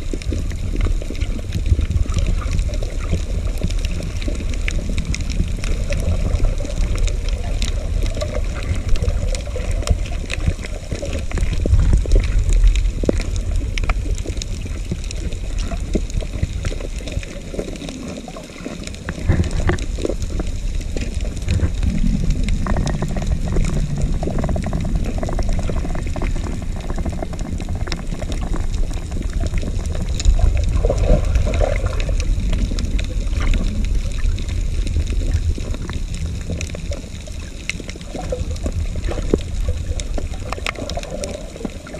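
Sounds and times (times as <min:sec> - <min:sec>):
water sloshing and gurgling: 0:00.0 - 0:41.9
faint clicks: 0:00.1 - 0:41.9.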